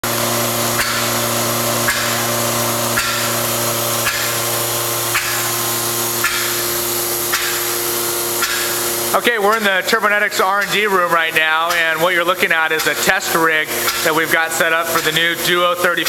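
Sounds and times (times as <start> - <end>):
blow-off valve clicking and venting air: 0.0 - 16.0
compressor hum: 0.0 - 16.0.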